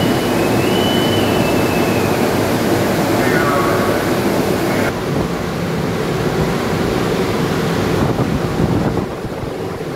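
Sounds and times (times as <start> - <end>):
churning sea water: 0.0 - 9.9
wind: 0.0 - 9.9
wind buffeting microphone: 6.1 - 9.9.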